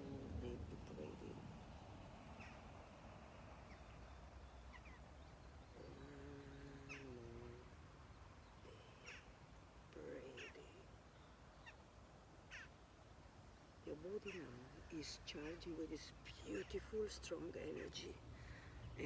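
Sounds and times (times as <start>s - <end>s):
sharp bird calls: 2.3s - 2.7s, 3.6s - 7.6s, 10.4s - 12.8s.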